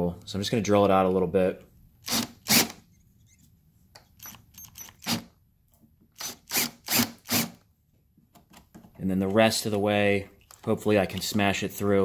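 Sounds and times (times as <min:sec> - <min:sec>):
electric drill cutting plastic: 0:06.2 - 0:07.6.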